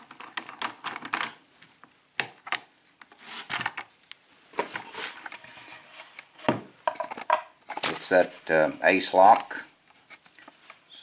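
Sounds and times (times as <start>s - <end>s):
metal clicks and knocks: 6.8s - 8.0s.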